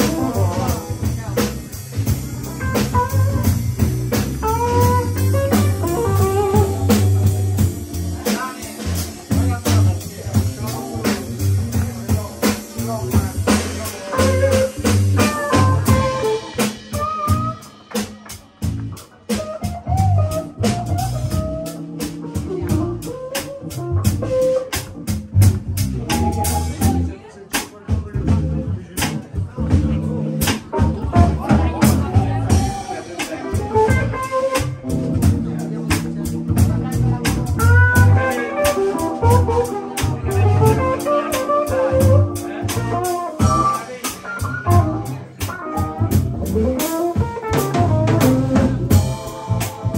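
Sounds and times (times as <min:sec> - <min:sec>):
electric guitar lead: 0:00.0 - 0:27.2, 0:29.8 - 0:49.9
band playing jazzy groove: 0:00.0 - 0:49.9
bass guitar: 0:00.0 - 0:49.9
drum kit beat: 0:00.0 - 0:49.9
melodic lead line: 0:36.4 - 0:49.9.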